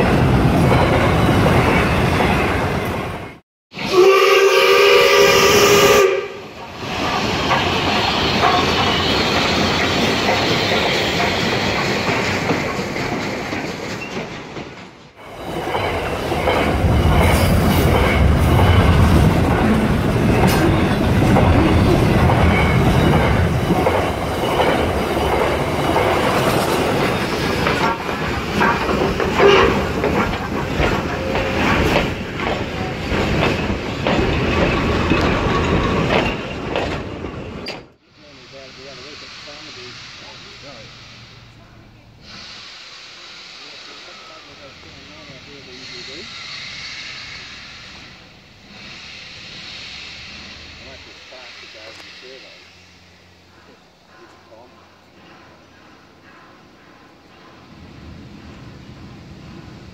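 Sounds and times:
model locomotive horn: 0:03.8 - 0:06.5
model train wheels rumbling on track: 0:38.2 - 0:56.2.

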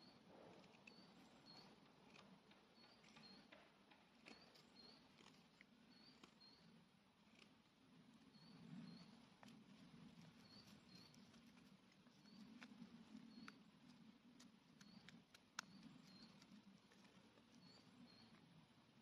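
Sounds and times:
light ticks: 0:10.5 - 0:18.4.

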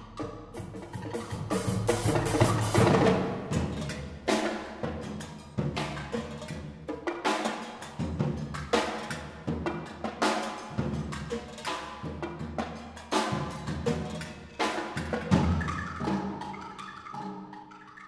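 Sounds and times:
percussion ensemble drumming: 0:00.0 - 0:17.3
heavy accented drum hits: 0:00.6 - 0:04.5.

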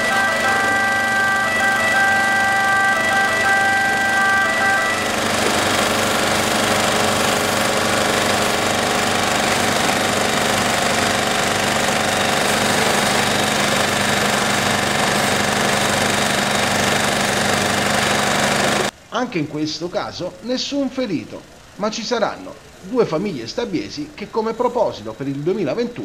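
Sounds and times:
fire engine motor running: 0:00.0 - 0:26.0
water jet hissing from hose: 0:05.0 - 0:18.9.

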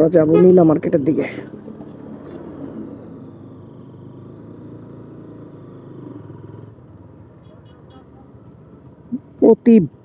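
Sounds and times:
road rush: 0:00.0 - 0:10.0
motorcycle engine running: 0:01.5 - 0:07.5.

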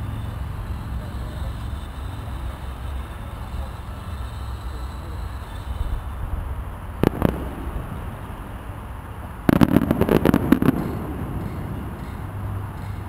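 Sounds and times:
firework crackling volley: 0:00.3 - 0:13.0
firework bangs: 0:06.9 - 0:13.0.

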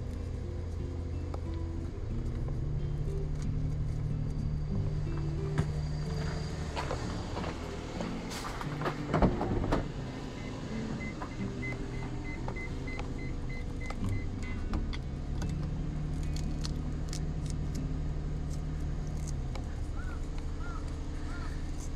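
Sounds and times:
low hum in van cabin: 0:00.0 - 0:21.9
faint regular beeping: 0:10.1 - 0:15.0.

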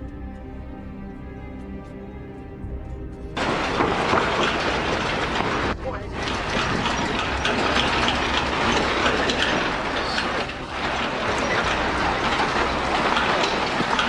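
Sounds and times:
objects rattling and clattering: 0:03.4 - 0:14.0.

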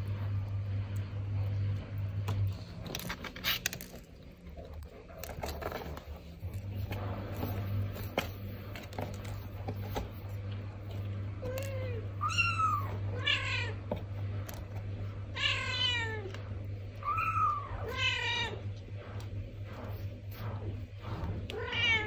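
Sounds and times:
scratching in cat litter: 0:00.0 - 0:22.0
cats meowing: 0:11.4 - 0:13.8, 0:15.3 - 0:16.4, 0:17.0 - 0:18.7, 0:21.4 - 0:22.0.

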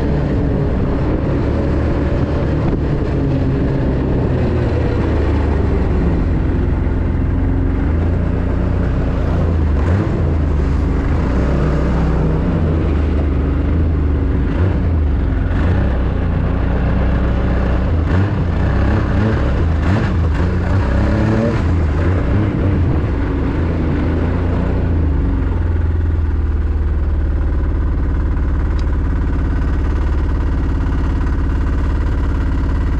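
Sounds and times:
snowmobile engine running: 0:00.0 - 0:32.9
snowmobile idling: 0:00.0 - 0:32.9.

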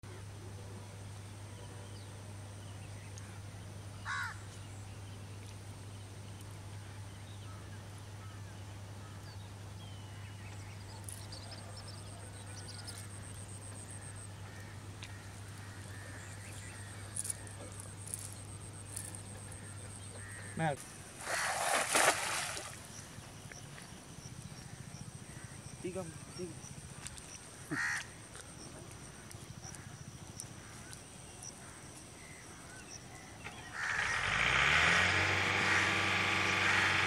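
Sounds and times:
birds calling: 0:02.9 - 0:04.7, 0:09.8 - 0:37.0.

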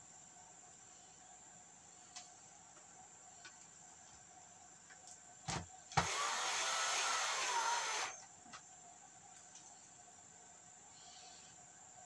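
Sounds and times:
cordless drill whining: 0:06.0 - 0:08.2.

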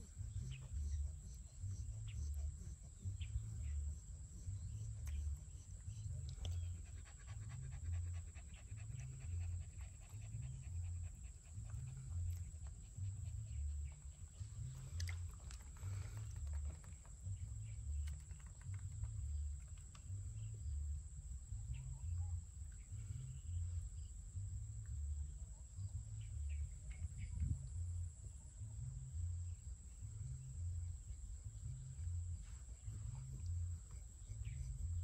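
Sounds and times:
puppy breathing heavily: 0:06.1 - 0:17.4.

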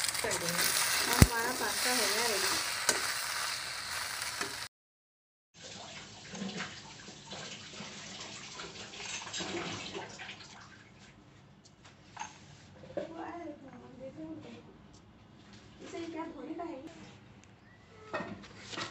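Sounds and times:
pasta sizzling in pan: 0:00.0 - 0:04.7.

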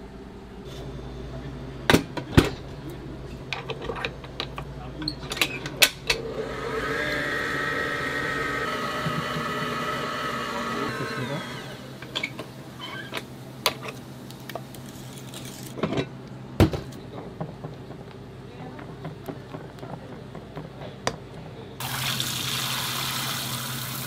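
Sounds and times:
stand mixer motor whine: 0:06.2 - 0:12.0.

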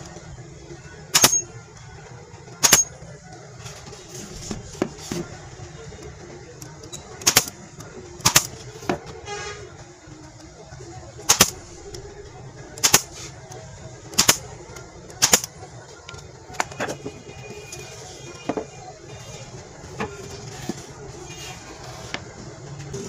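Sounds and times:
nail gun firing: 0:01.2 - 0:01.4, 0:02.6 - 0:02.9, 0:07.2 - 0:07.6, 0:08.2 - 0:08.6, 0:11.3 - 0:11.7, 0:12.8 - 0:13.2, 0:14.1 - 0:14.5, 0:15.2 - 0:15.6.

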